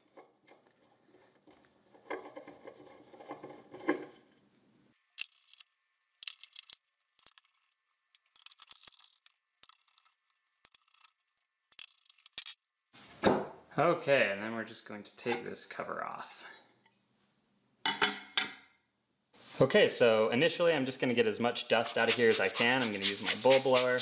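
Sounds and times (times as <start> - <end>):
small screws clicking: 5.0 - 12.6
screwdriver scratching metal: 21.8 - 24.0.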